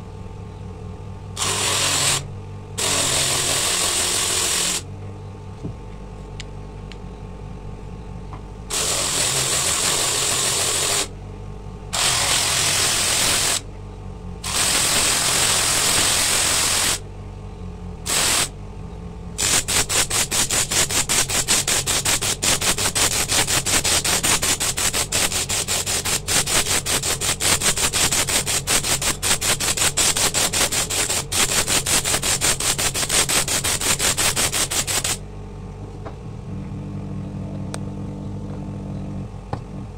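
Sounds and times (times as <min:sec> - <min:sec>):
disc sander grinding shell: 0:01.4 - 0:04.8, 0:08.7 - 0:11.1, 0:12.0 - 0:13.6, 0:19.4 - 0:35.2.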